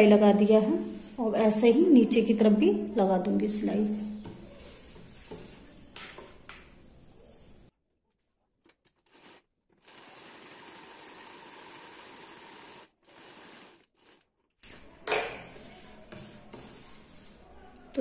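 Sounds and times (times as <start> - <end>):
sewing machine running: 9.0 - 14.3.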